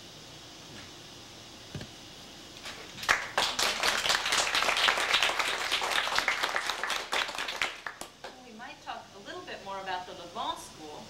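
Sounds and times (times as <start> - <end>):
audience applauding: 3.0 - 8.3.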